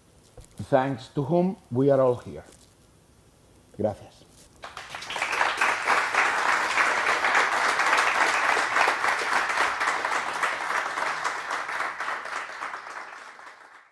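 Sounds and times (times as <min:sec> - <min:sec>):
audience applauding: 0:04.6 - 0:13.9.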